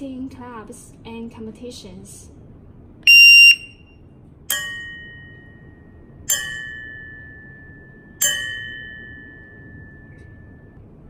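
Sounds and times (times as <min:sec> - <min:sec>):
shot timer beep: 0:03.1 - 0:03.8.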